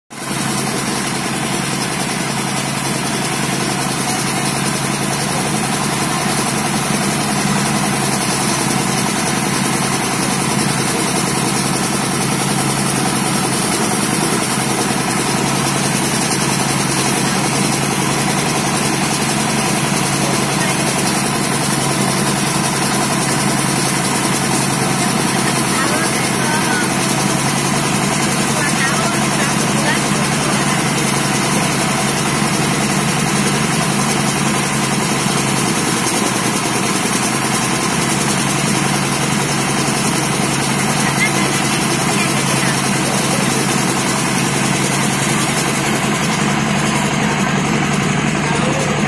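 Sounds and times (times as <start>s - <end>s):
rice thresher running: 0.1s - 49.0s.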